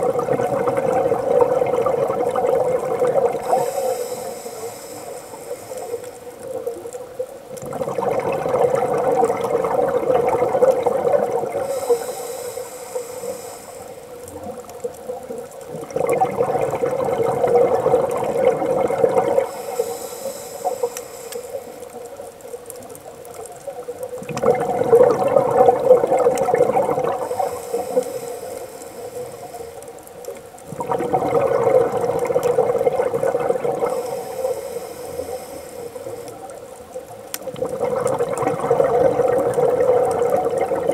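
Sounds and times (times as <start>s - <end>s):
exhaled bubbles rushing: 0.0s - 3.8s, 6.0s - 11.8s, 14.2s - 19.6s, 24.2s - 29.6s, 30.6s - 34.6s, 37.4s - 40.9s
regulator inhalation hiss: 3.3s - 6.5s, 11.6s - 14.4s, 19.4s - 22.1s, 27.1s - 30.0s, 33.8s - 36.7s.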